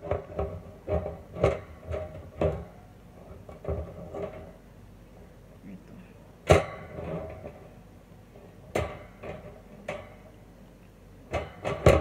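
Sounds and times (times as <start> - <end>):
knocks and clicks of fan guard: 0.0 - 4.5, 6.4 - 7.8, 8.6 - 10.2, 11.3 - 12.0.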